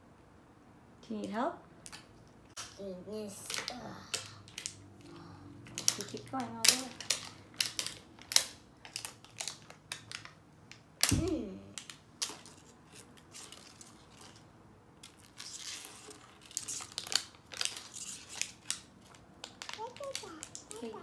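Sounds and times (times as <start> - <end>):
plastic wrap crinkling and tearing: 3.4 - 21.0.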